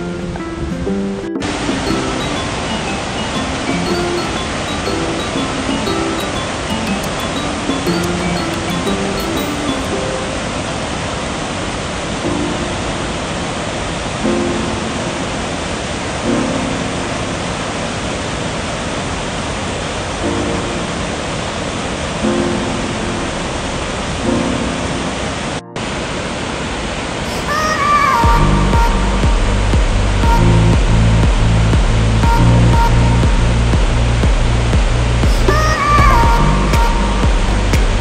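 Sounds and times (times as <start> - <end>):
soft background music chords: 0.0 - 10.9, 12.2 - 18.1, 22.2 - 26.6, 27.6 - 38.0
water rushing: 0.0 - 38.0.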